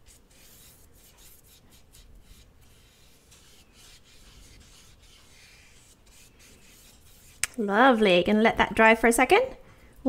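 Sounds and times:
paintbrush rubbing on paper: 0:00.0 - 0:07.6.

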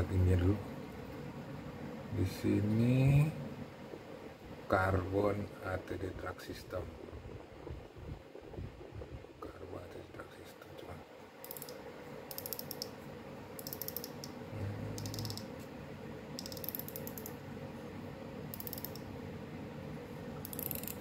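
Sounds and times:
fishing reel drag clicking: 0:11.5 - 0:12.9, 0:13.6 - 0:14.2, 0:20.5 - 0:21.0.

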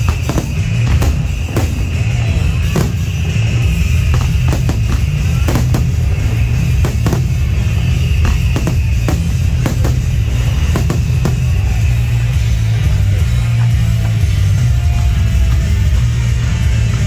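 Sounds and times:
fireworks cracking: 0:00.0 - 0:12.6
loud rock music: 0:00.0 - 0:17.0.

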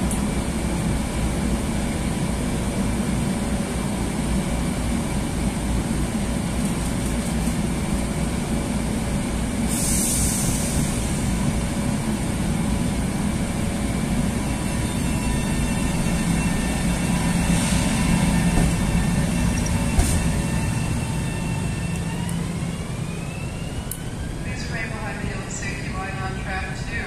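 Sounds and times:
air hiss: 0:09.7 - 0:11.2.

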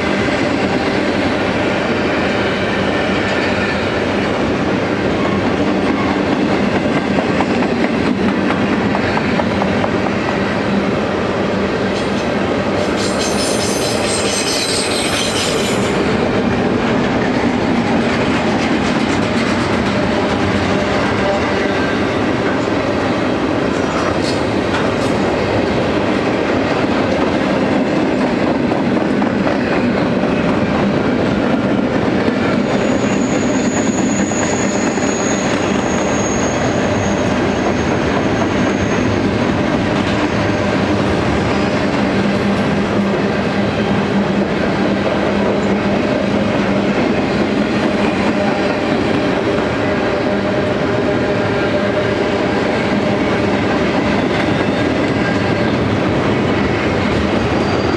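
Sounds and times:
freight train wheels rumbling: 0:00.0 - 0:57.9
high wheel squeal: 0:12.8 - 0:16.0, 0:32.8 - 0:39.2, 0:57.5 - 0:57.9.

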